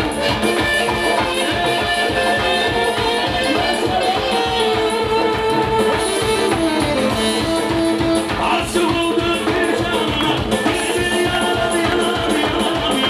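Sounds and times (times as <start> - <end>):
drum kit beat: 0.0 - 13.0
electronic keyboards: 0.0 - 13.0
man singing into a microphone: 1.0 - 5.7, 8.3 - 13.0.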